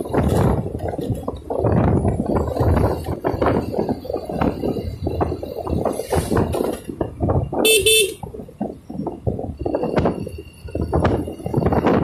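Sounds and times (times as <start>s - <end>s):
motorcycle rumble: 0.0s - 12.0s
wind buffeting microphone: 0.0s - 12.0s
motorcycle horn beeping: 7.6s - 8.2s.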